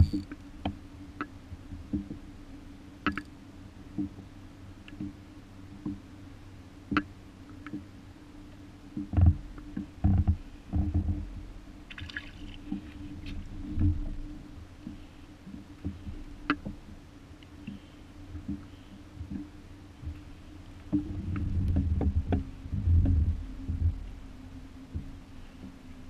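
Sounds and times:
water lapping and sloshing: 0:00.0 - 0:26.0
water drops clicking: 0:03.0 - 0:03.3.

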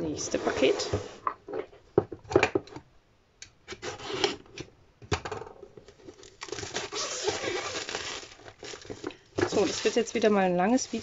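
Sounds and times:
plastic film crinkling: 0:05.9 - 0:11.0.

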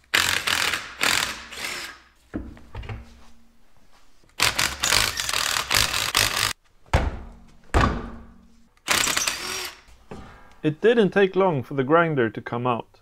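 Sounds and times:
impact wrench hammering: 0:04.4 - 0:07.1
heavy thuds: 0:06.8 - 0:08.7.

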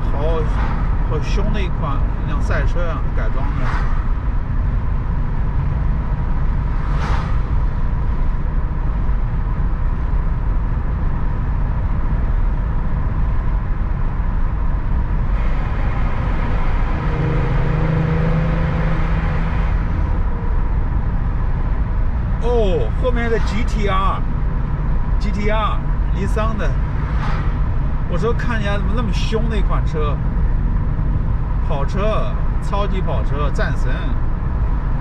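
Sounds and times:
road and tyre rumble in car: 0:00.0 - 0:35.0
brief whoosh: 0:03.4 - 0:04.2, 0:06.7 - 0:07.9, 0:26.7 - 0:28.1.

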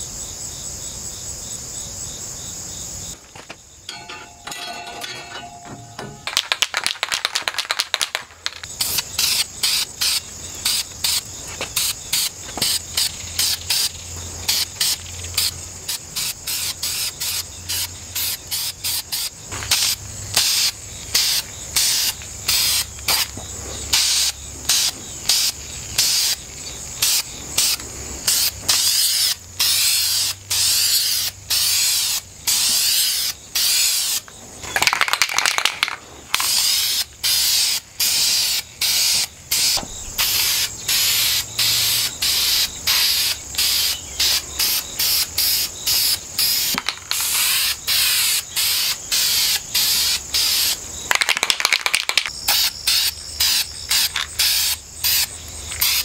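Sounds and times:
aerosol spray can hissing: 0:07.6 - 0:26.4, 0:27.0 - 0:34.2, 0:36.4 - 0:50.8, 0:52.5 - 0:56.0.

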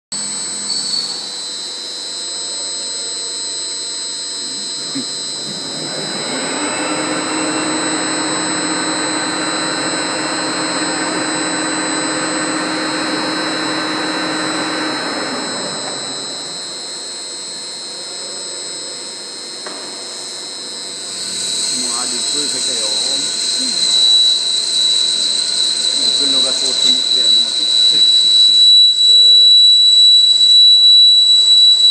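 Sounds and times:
machine tool high whine: 0:00.2 - 0:19.6, 0:20.2 - 0:31.9
hissing roar of tool cutting metal: 0:04.4 - 0:17.0.

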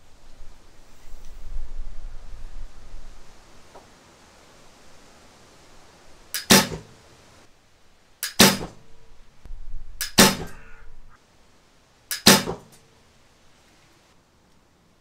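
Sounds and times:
bowstring snapping: 0:10.0 - 0:10.6.

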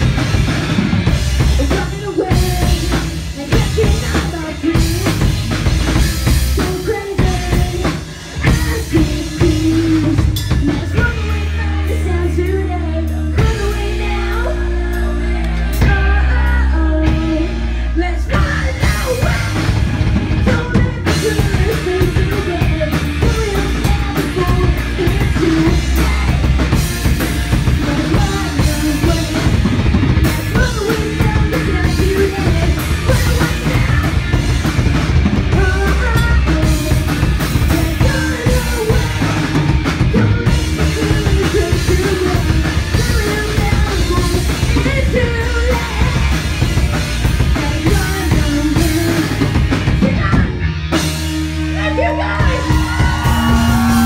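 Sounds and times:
live rock band playing: 0:00.0 - 0:54.0
pounding drum kit: 0:00.0 - 0:54.0
person singing: 0:01.4 - 0:05.4, 0:06.5 - 0:19.8, 0:20.4 - 0:34.6, 0:35.4 - 0:46.7, 0:47.4 - 0:50.6, 0:51.7 - 0:54.0.

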